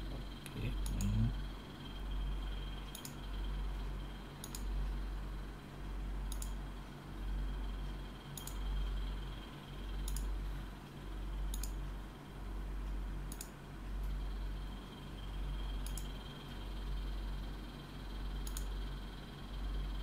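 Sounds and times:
low hum: 0.0 - 20.0
computer mouse clicking: 0.4 - 1.3, 2.9 - 3.3, 4.4 - 4.8, 6.3 - 6.6, 8.3 - 8.8, 9.9 - 10.4, 11.5 - 11.8, 13.3 - 14.2, 15.7 - 16.3, 18.4 - 18.8.

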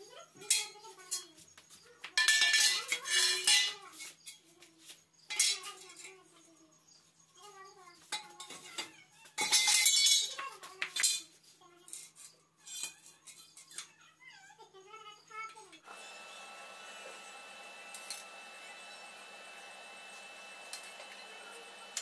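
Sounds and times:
steel tubing clattering on concrete: 0.4 - 4.4, 5.3 - 6.1, 8.0 - 13.9.

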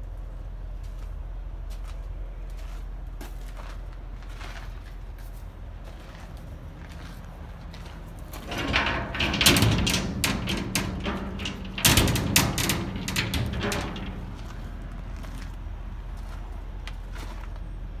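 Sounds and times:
steady low hum: 0.0 - 18.0
metal clatter: 8.4 - 15.5.

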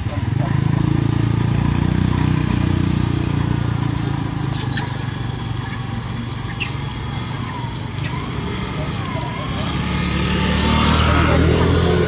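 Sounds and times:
motorcycle engine running: 0.0 - 12.0
short high squeaks: 4.5 - 8.3.

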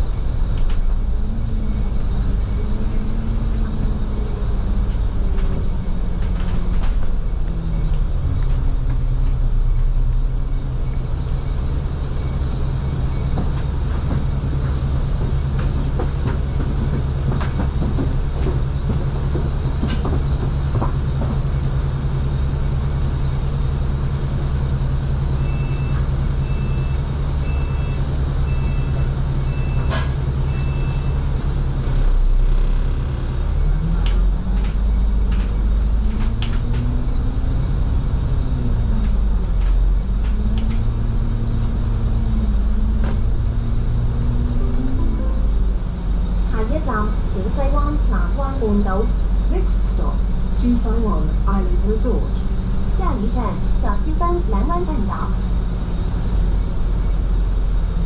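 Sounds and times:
bus engine drone: 0.0 - 58.0
rattles and knocks from bus body: 2.5 - 11.0, 12.9 - 22.8, 28.8 - 44.6.

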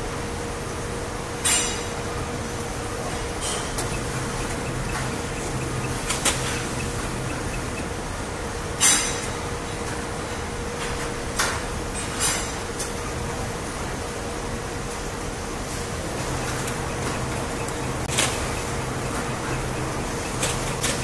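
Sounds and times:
machine hum with faint tone: 0.0 - 21.0
sharp machine clacks: 3.4 - 8.0, 16.1 - 21.0.

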